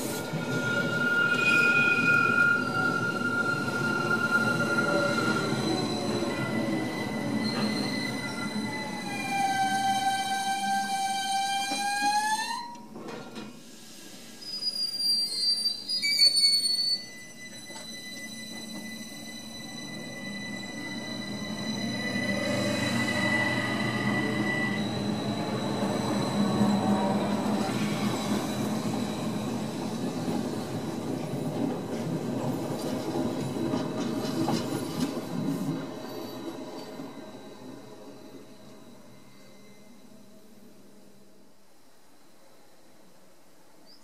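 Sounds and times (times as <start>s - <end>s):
train wheels rumbling on rails: 0.0s - 12.2s, 17.3s - 38.8s
train wheel squeals: 0.0s - 13.0s, 13.6s - 40.6s
electric train whine: 17.0s - 43.3s.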